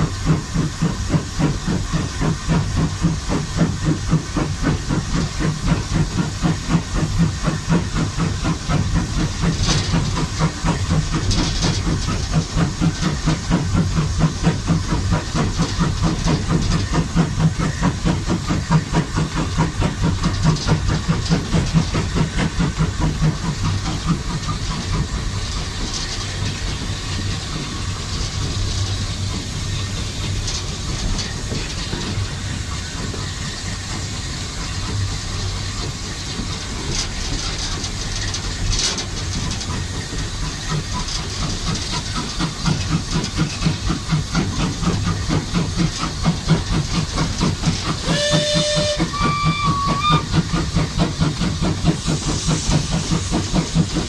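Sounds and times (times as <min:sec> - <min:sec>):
locomotive rumble: 0:00.0 - 0:54.0
steam hiss: 0:00.0 - 0:54.0
steam locomotive exhaust beats: 0:00.0 - 0:54.0.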